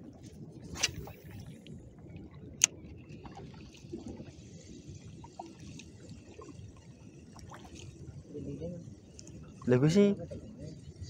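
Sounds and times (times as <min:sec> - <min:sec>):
water lapping against boat hull: 0:00.0 - 0:08.3.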